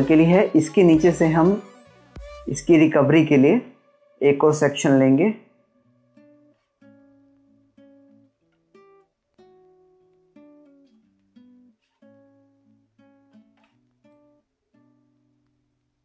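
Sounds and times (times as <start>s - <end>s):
plucked guitar chords: 0.0s - 15.9s.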